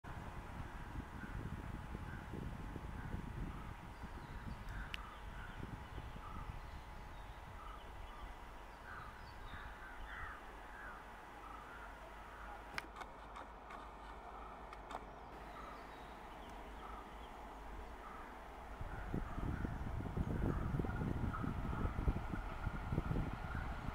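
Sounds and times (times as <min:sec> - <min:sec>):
faint bird calls: 0:04.3 - 0:20.7
sharp clicks: 0:12.7 - 0:15.2.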